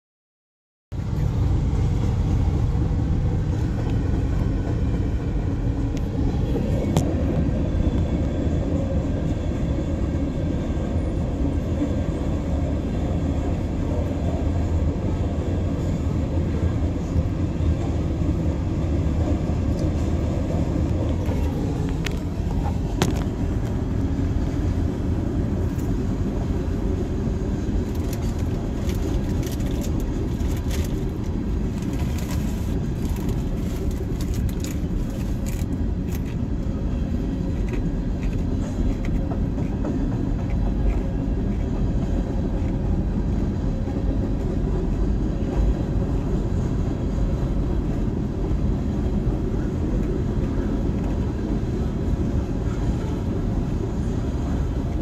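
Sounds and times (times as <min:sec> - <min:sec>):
freight train rumbling on rails: 0:00.9 - 0:55.0
train wheels clicking: 0:37.5 - 0:43.4.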